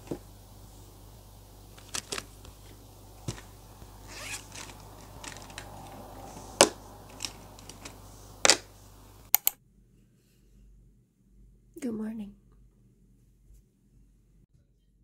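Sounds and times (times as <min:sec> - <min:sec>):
fabric pencil case rustling: 0:01.6 - 0:09.2
light ticks of pens: 0:01.8 - 0:08.7, 0:09.3 - 0:09.6
quick clicks: 0:09.3 - 0:09.6.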